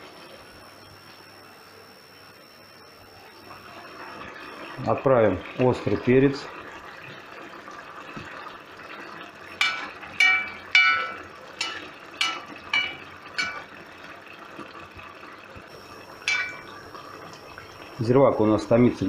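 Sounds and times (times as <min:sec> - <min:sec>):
broth simmering: 0:00.1 - 0:19.0
metal skimmer clinking on iron pot: 0:09.6 - 0:14.0, 0:16.2 - 0:16.9.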